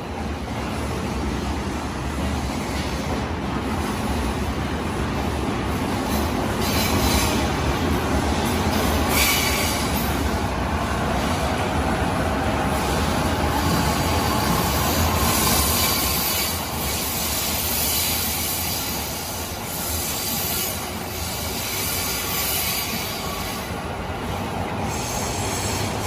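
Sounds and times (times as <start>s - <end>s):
electric train pulling out: 6.0s - 26.0s.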